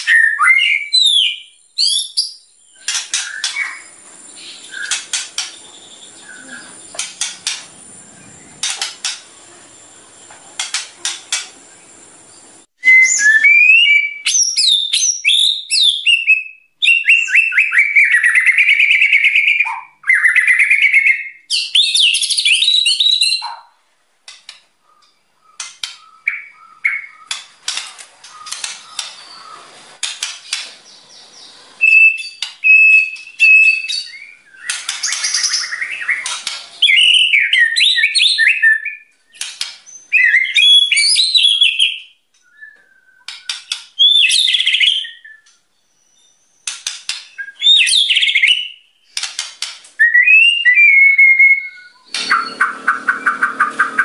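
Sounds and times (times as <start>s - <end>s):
bird singing whistled phrases: 0.0s - 2.4s, 12.8s - 23.4s, 31.8s - 46.4s, 47.3s - 48.8s, 50.0s - 54.0s
bird clicks: 6.9s - 7.8s, 8.6s - 9.3s, 10.6s - 11.6s, 24.3s - 26.1s, 27.2s - 29.2s.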